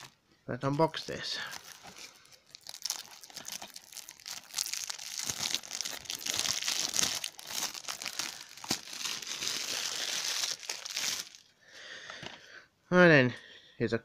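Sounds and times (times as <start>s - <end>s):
plastic wrap tearing and crinkling: 0.0s - 0.2s, 1.4s - 11.5s.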